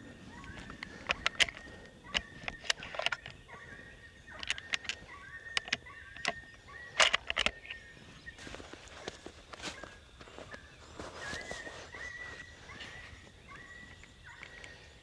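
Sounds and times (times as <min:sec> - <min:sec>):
birds singing faintly: 0:00.0 - 0:15.0
sharp clicks: 0:00.4 - 0:03.4, 0:04.3 - 0:07.8
rustles of movement: 0:06.9 - 0:15.0.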